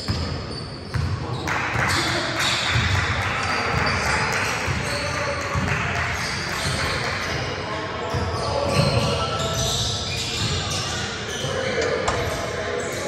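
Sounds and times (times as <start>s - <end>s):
basketball bouncing on court: 0.0s - 7.4s
crowd and player voices: 0.0s - 13.0s.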